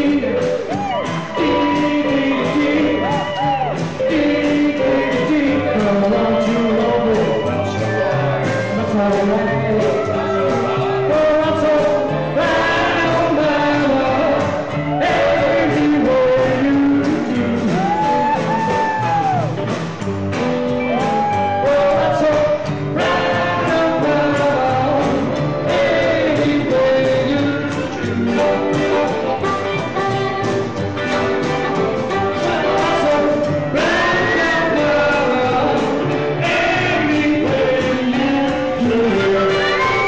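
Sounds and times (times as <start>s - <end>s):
men singing: 0.0s - 19.3s, 20.9s - 40.0s
drums: 0.0s - 40.0s
electric guitar: 0.0s - 40.0s
upright double bass: 0.0s - 40.0s.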